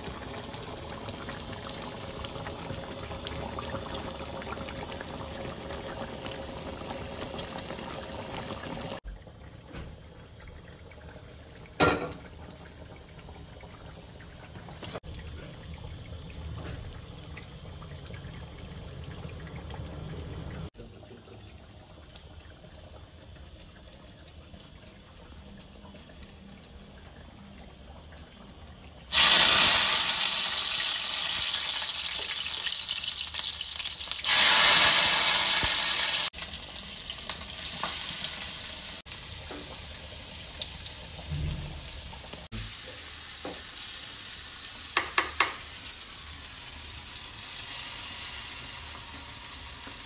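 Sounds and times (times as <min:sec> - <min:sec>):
water hissing in hot pan: 0:00.0 - 0:09.0, 0:29.1 - 0:50.0
quiet kitchen sounds: 0:00.0 - 0:50.0.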